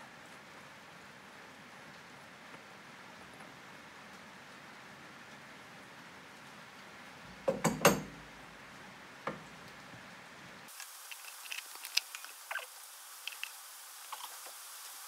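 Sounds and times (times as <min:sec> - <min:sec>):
hose clicking and scraping: 0:10.7 - 0:14.6.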